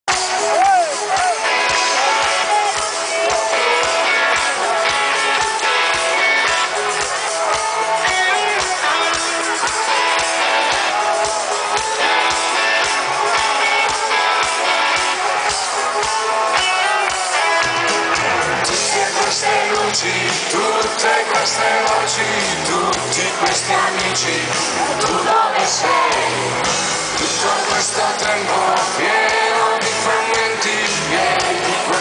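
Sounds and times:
live rock band playing: 0.1 - 32.0
steady drum beat: 0.1 - 32.0.

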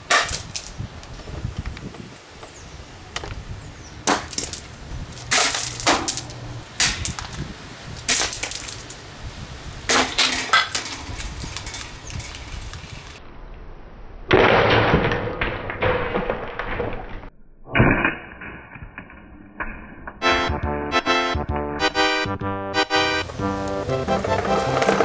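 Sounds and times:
plastic fan being smashed: 0.0 - 0.7, 4.1 - 7.4, 8.0 - 9.0, 9.9 - 12.6, 14.3 - 17.1.

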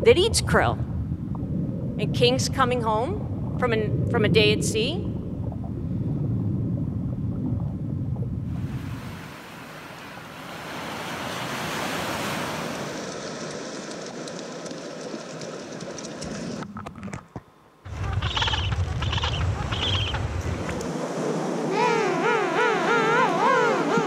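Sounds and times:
wind rumbling on microphone: 0.0 - 17.1, 17.9 - 24.0
surf washing onto pebble beach: 8.6 - 16.2.

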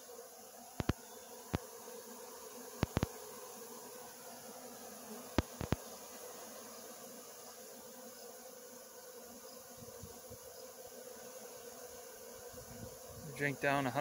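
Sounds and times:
bees buzzing: 0.0 - 14.0
sharp clicks: 2.8 - 3.1.

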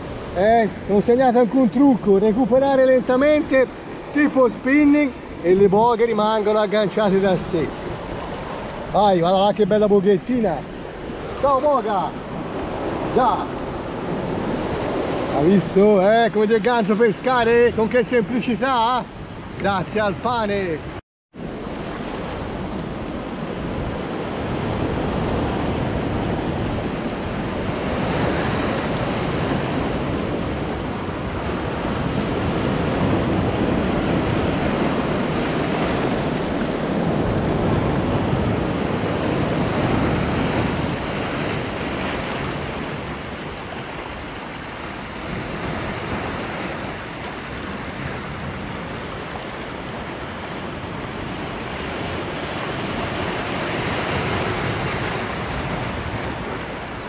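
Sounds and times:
waves breaking over rocks: 31.4 - 57.0.

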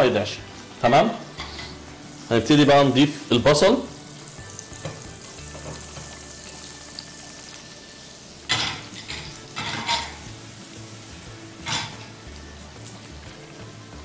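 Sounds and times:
onion sizzling in a pan: 0.0 - 14.0
stirring scrapes in a pan: 1.3 - 2.0.

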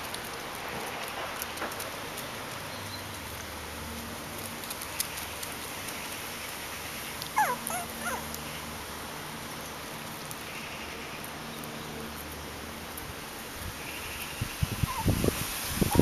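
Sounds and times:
puppies yipping: 7.2 - 8.4, 14.7 - 16.0.

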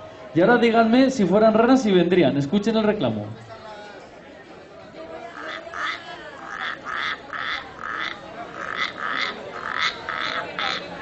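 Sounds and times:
friction drum rasping croaks: 5.4 - 10.8.

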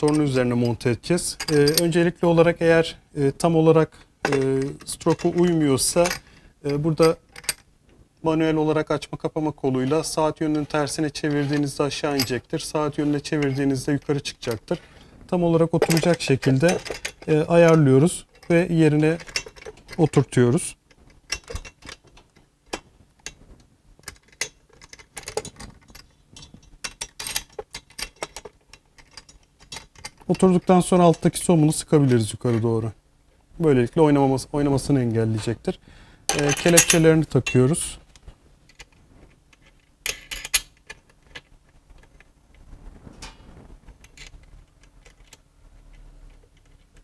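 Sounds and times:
small metal parts clinking: 0.0 - 2.0, 4.2 - 7.7, 10.5 - 14.8, 15.7 - 20.3, 20.9 - 22.5, 24.0 - 31.3, 36.3 - 37.8, 38.7 - 42.3
light metal clicks and clinks: 1.4 - 2.0.

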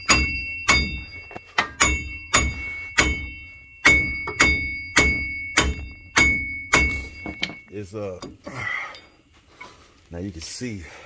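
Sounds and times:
hammer blows on steel: 0.0 - 7.7.

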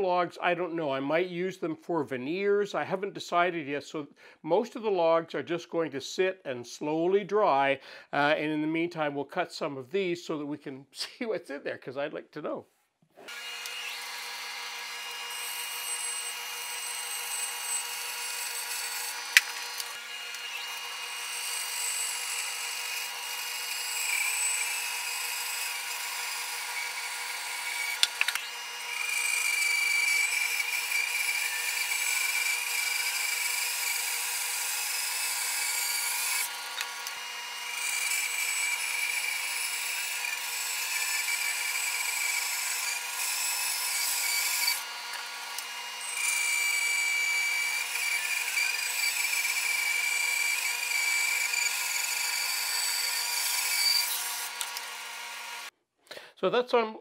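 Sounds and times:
bandsaw cutting log: 13.2 - 55.7.

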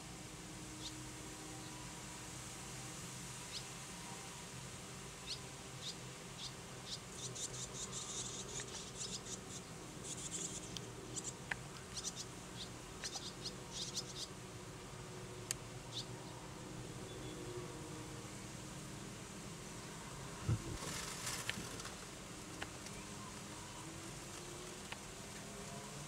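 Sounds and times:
faint low hum: 0.0 - 26.0
swallows chirping and twittering: 5.2 - 14.3, 15.9 - 16.4.

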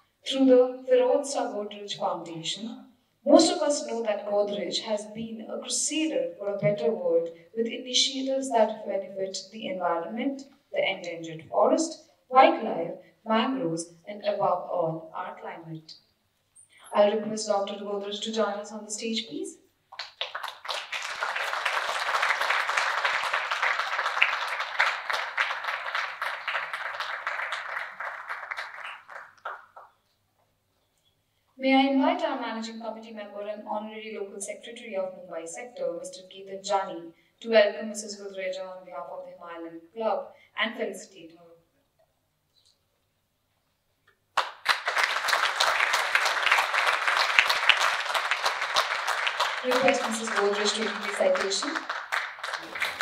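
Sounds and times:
audience applauding: 19.9 - 29.9, 44.4 - 53.0.

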